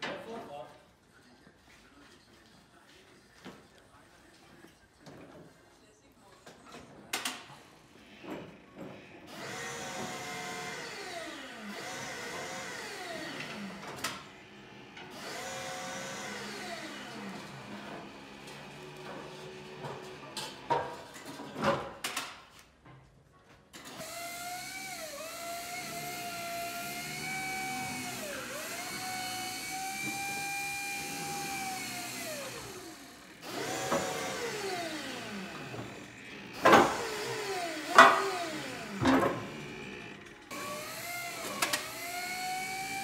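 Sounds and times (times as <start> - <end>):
electric forklift motors whining: 9.2 - 21.4, 23.8 - 43.0.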